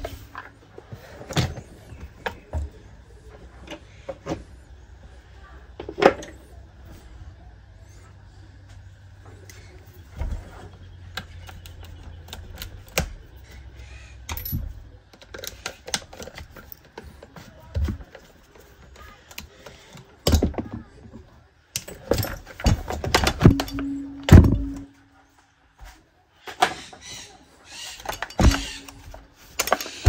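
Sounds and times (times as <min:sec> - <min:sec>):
metallic clicks of tools and parts: 0:14.2 - 0:17.0, 0:21.7 - 0:24.9, 0:28.0 - 0:30.0.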